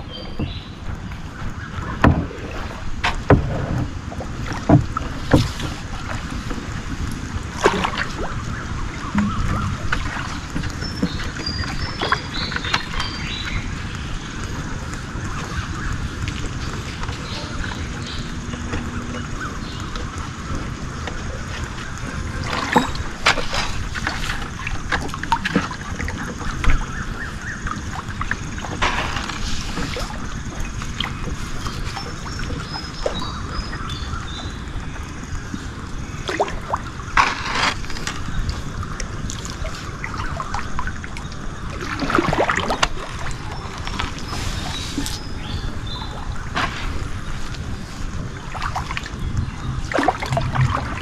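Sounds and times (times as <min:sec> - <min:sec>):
water sloshing around boat: 0:00.0 - 0:51.0
loud splashes: 0:49.8 - 0:51.0.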